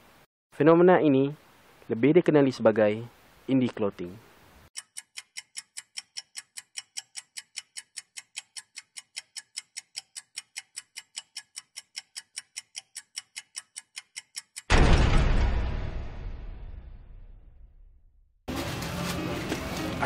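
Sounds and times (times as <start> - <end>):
fast clock-like ticking: 4.8 - 14.7
deep boom: 14.7 - 18.2.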